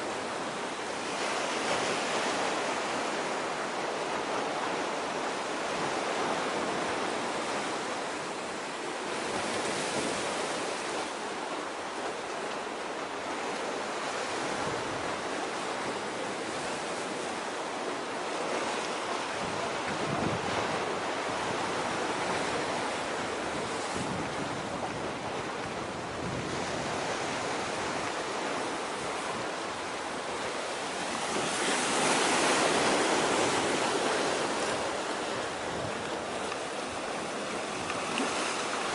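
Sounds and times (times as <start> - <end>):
sea waves: 0.0 - 38.9
wind buffeting microphone: 19.3 - 38.9.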